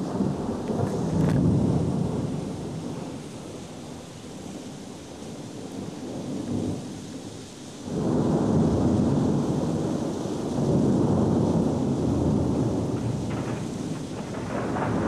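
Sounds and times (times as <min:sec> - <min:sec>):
thunder rumbling: 0:00.0 - 0:03.3, 0:07.9 - 0:15.0
steady rain hiss: 0:00.0 - 0:15.0.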